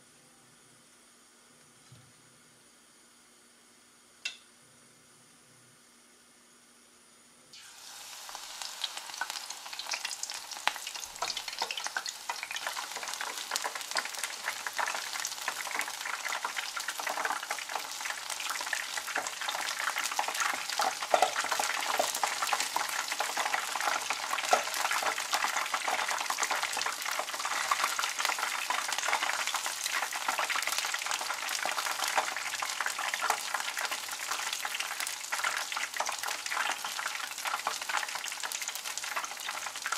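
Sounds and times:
batter sizzling in hot oil: 7.5 - 39.9.

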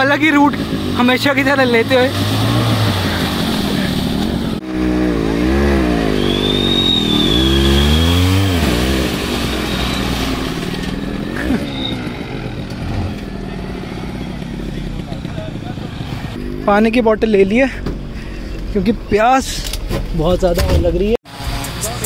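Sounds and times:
offroad vehicle engine revving: 0.0 - 19.9.

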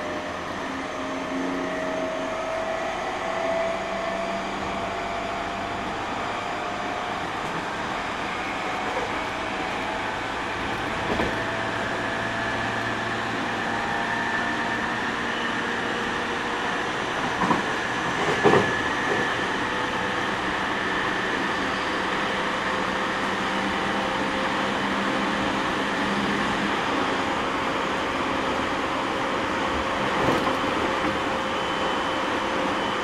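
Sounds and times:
train wheels rumbling: 0.0 - 23.0.

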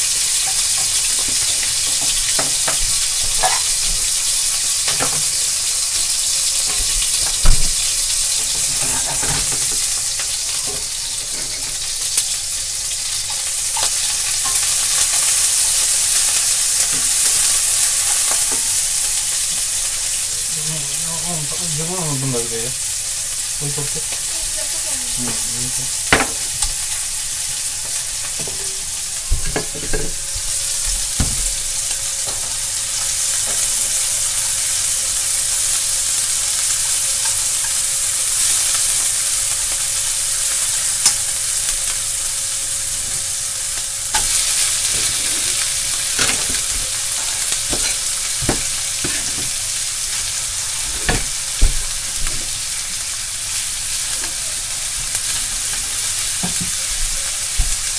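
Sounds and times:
meat sizzling in a frying pan: 0.0 - 57.9
chopsticks clicking and scraping pan: 8.6 - 11.9, 13.3 - 15.2, 46.1 - 49.6.

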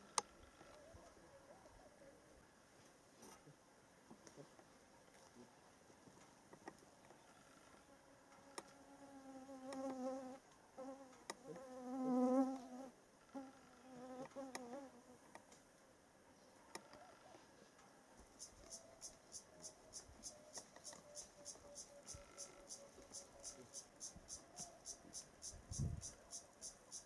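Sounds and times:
flying insect buzzing: 8.4 - 15.2, 20.8 - 27.0.

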